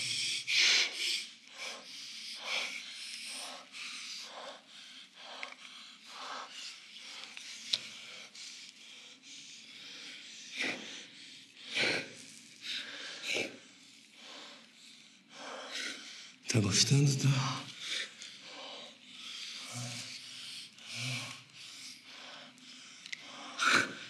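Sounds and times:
person breathing heavily: 0:00.0 - 0:16.4, 0:17.6 - 0:24.0.

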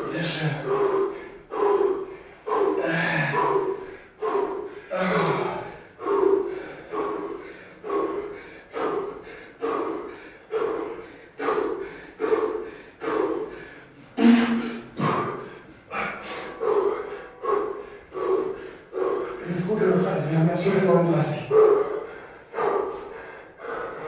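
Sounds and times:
people breathing hard: 0:00.0 - 0:24.0
strained grunt: 0:01.6 - 0:07.4, 0:14.2 - 0:19.8.

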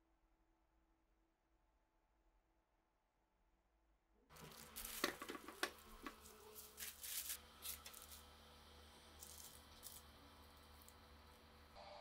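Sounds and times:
plastic bag crinkling: 0:04.3 - 0:08.3, 0:09.2 - 0:10.1
objects knocking on tabletop: 0:05.0 - 0:06.2.

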